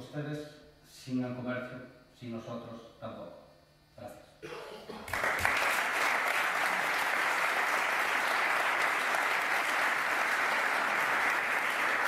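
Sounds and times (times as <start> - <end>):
audience applauding: 5.1 - 12.0.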